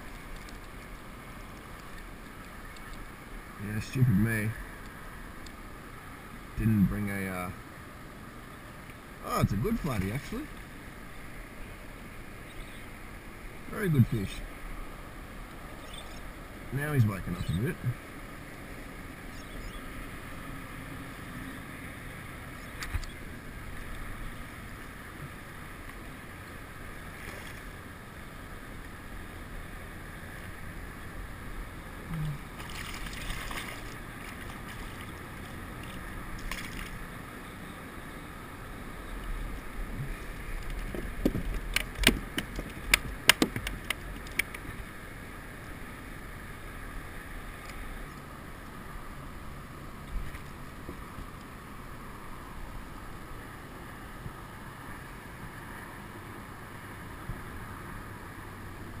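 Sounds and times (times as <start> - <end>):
water hissing around kayak: 0.0 - 41.5, 44.1 - 59.0
fish splashing at surface: 32.5 - 35.2
sharp knocks and clicks: 40.6 - 44.7.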